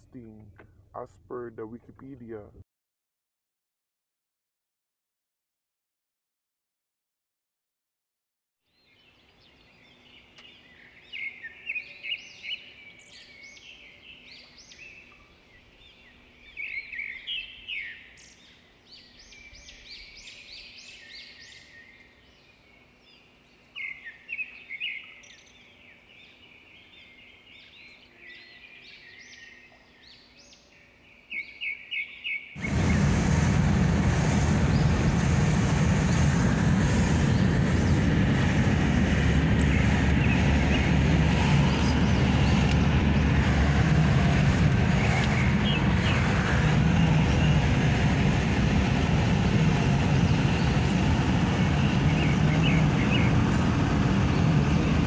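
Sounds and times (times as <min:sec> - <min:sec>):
wind and road noise: 0:32.6 - 0:55.0
small birds chirping: 0:44.8 - 0:55.0.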